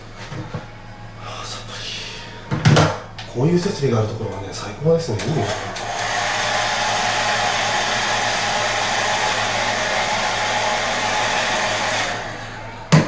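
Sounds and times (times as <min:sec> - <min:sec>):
hair dryer running: 0:05.1 - 0:13.0.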